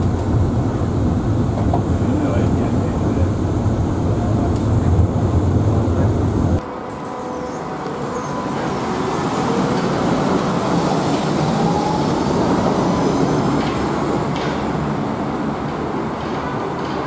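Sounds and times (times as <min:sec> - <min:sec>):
monorail whine: 0:00.0 - 0:17.0
steel wheels rumbling on rail: 0:00.0 - 0:17.0.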